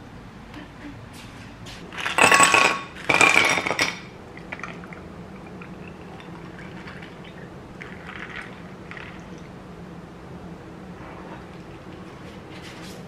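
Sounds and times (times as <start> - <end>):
ice cubes clattering into glass: 2.0 - 4.8
milk pouring over ice: 4.3 - 9.5.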